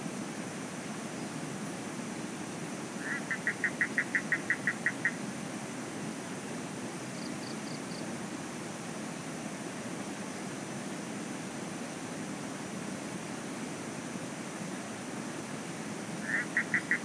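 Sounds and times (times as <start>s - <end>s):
rushing background noise: 15.4s - 17.0s
animal call of short notes: 16.2s - 17.0s.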